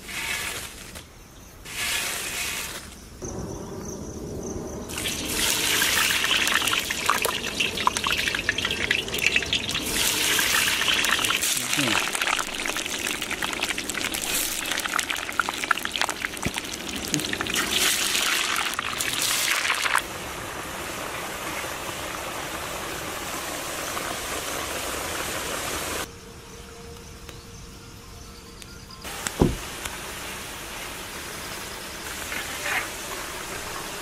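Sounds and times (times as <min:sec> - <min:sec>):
fries sizzling in hot oil: 0:04.9 - 0:26.1, 0:29.1 - 0:34.0.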